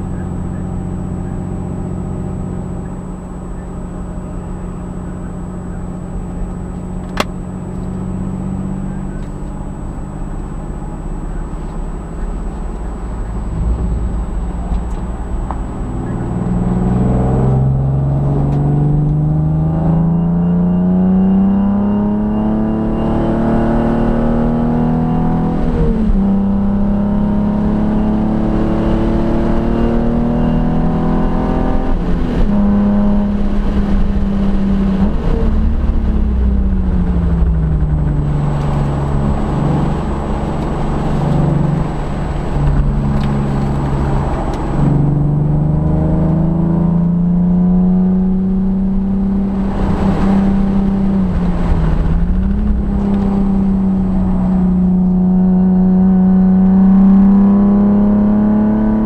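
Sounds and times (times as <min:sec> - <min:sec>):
car engine pulling hard: 0:00.0 - 0:59.0
rushing noise: 0:12.9 - 0:18.3, 0:35.0 - 0:46.7, 0:49.4 - 0:56.0.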